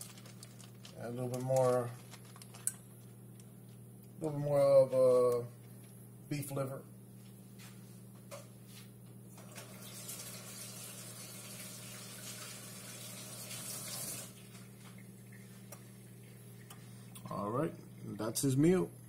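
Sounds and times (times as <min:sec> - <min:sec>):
steady low hum: 0:00.0 - 0:09.4, 0:14.4 - 0:19.0.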